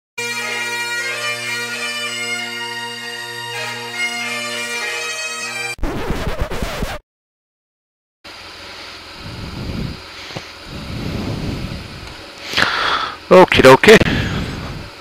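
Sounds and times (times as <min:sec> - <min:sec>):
bagpipe tune with drones: 0:00.2 - 0:05.8
rough rumbling noise: 0:09.2 - 0:12.2.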